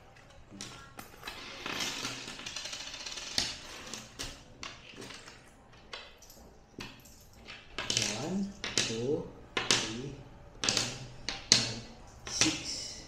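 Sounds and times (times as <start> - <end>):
coins clicking on a wooden table: 0.6 - 8.9, 10.6 - 12.6.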